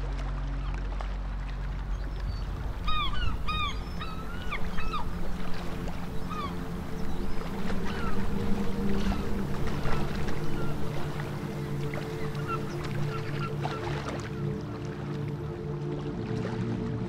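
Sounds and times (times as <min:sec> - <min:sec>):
low steady hum: 0:00.0 - 0:17.0
seabirds squawking: 0:01.9 - 0:14.6.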